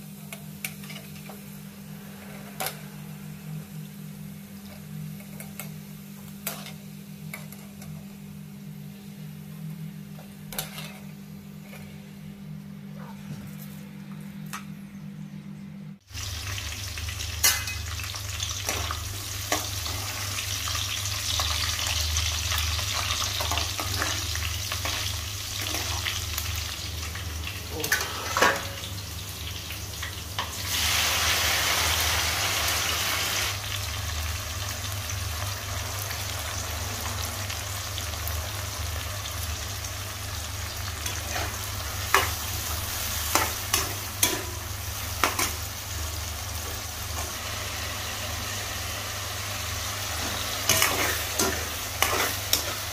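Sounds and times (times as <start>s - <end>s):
oil sizzling in a frying pan: 16.0s - 52.9s
steel spoon scraping a pan: 50.7s - 52.9s.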